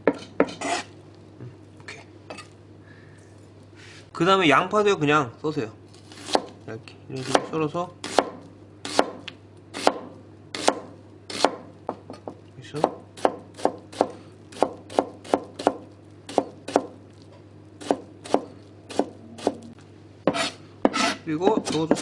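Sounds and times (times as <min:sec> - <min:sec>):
knife chopping on cutting board: 0:06.1 - 0:06.6, 0:07.2 - 0:11.7, 0:12.8 - 0:17.0, 0:17.8 - 0:19.6, 0:20.2 - 0:22.0.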